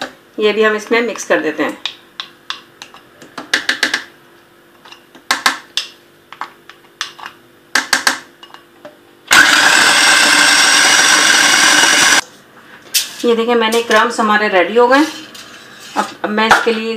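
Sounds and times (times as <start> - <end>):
food processor running: 9.3 - 12.2.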